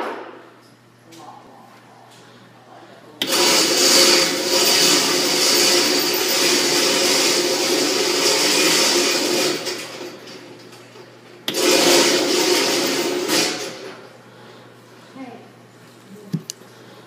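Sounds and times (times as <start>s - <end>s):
electric motor running: 3.2s - 9.6s.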